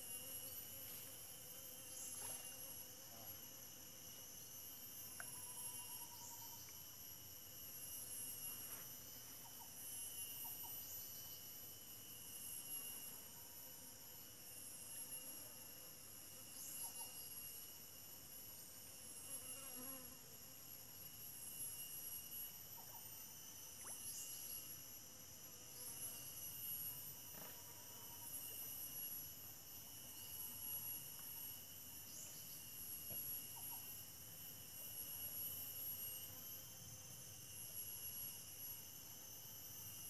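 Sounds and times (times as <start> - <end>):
insects chorus: 0.0 - 40.0
short insect chirp: 0.0 - 40.0.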